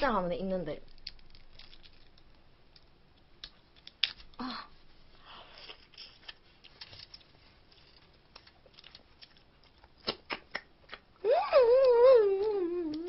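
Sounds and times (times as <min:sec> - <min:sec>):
crab shell cracking by hand: 0:00.8 - 0:04.4
woman humming: 0:11.2 - 0:13.0.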